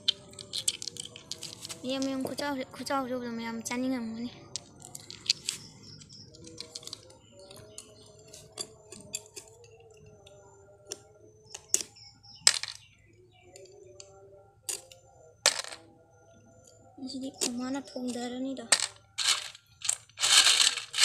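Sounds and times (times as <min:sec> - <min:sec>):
knife cracking snail shells: 0:00.1 - 0:01.8, 0:06.4 - 0:07.0.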